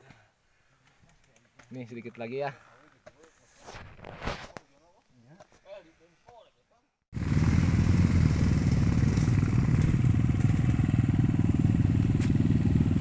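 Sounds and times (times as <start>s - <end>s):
dirt bike engines running: 7.2s - 13.0s.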